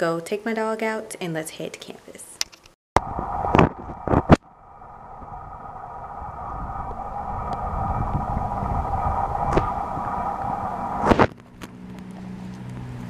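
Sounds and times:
mechanical hum: 3.0 - 13.0.

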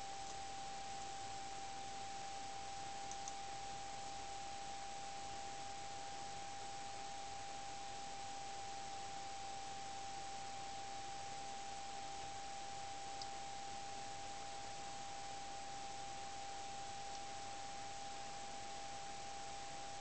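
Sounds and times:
constant hiss: 0.0 - 20.0
faint ticks: 0.2 - 1.2, 3.0 - 3.5, 13.1 - 13.5, 17.0 - 17.8.

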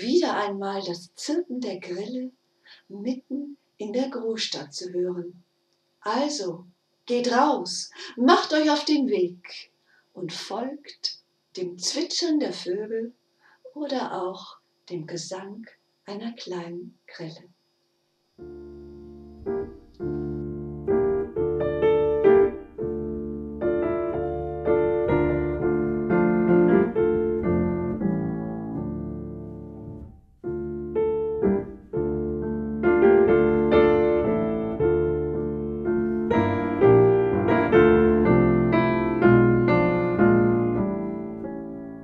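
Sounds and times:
piano music: 18.4 - 42.0.

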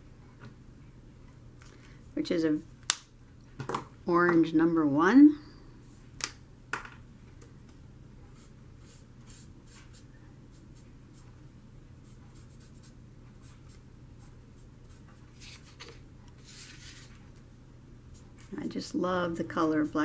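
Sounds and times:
marker scratching on paper: 8.3 - 10.8.

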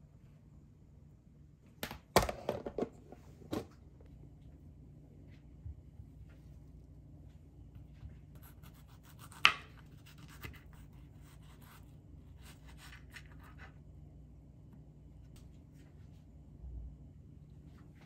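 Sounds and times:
knife slicing strawberries: 8.4 - 13.7.

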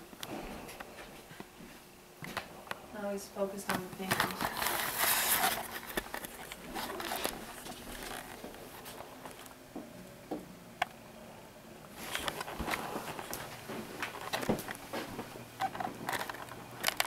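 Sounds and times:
rustling and handling noise: 3.6 - 10.4, 11.9 - 17.0.

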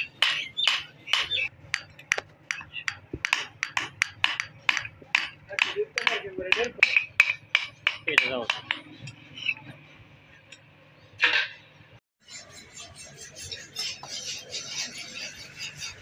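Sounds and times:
hammer striking hot steel on anvil: 0.2 - 8.9.

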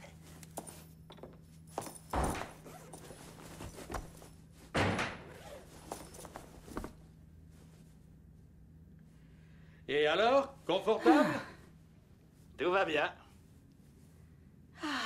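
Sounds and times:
low steady hum: 0.0 - 15.0
stall doors banging shut: 2.1 - 2.7, 4.7 - 5.4.

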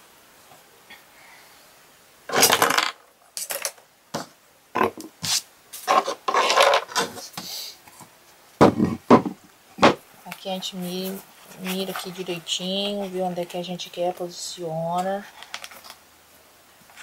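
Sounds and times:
wooden board set down: 2.3 - 5.1, 8.6 - 10.0
objects scraping and knocking on a table: 2.3 - 7.4, 8.6 - 10.0.

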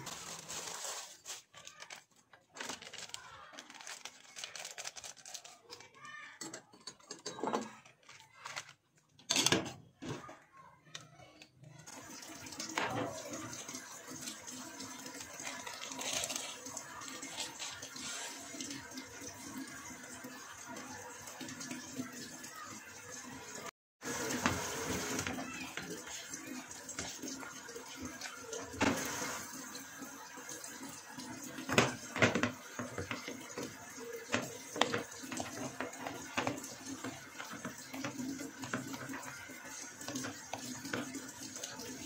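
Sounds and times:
plastic packet crinkling: 0.0 - 5.9, 15.4 - 18.0.

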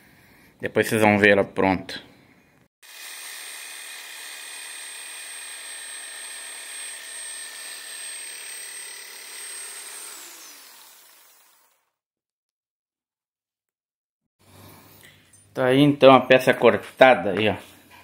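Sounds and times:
jigsaw cutting metal sheet: 2.8 - 12.0.

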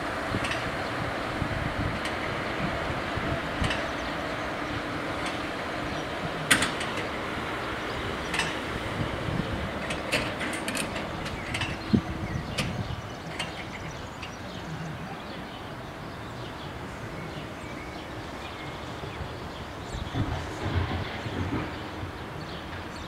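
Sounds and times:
crossing barrier arms lowering: 0.2 - 15.9.

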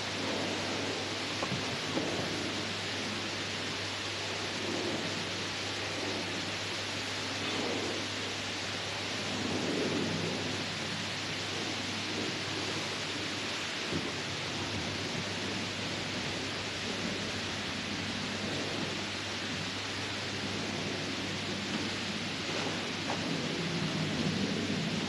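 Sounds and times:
steady rushing noise: 0.0 - 25.0.

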